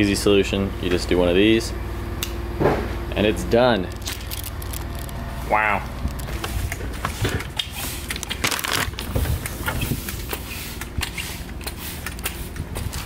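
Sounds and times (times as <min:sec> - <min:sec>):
paper bag crinkling: 0:03.9 - 0:09.5.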